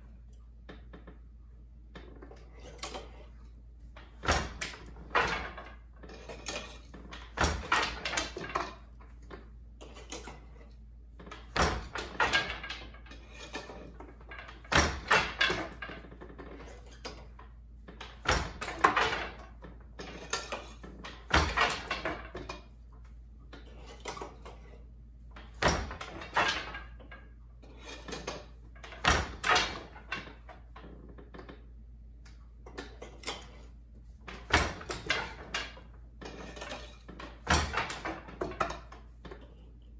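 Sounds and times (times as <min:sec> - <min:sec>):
loom shafts clattering: 0:00.0 - 0:39.9
loom beater striking: 0:04.2 - 0:09.0, 0:11.5 - 0:16.8, 0:18.0 - 0:22.6, 0:25.4 - 0:27.1, 0:28.1 - 0:30.4, 0:34.3 - 0:38.9.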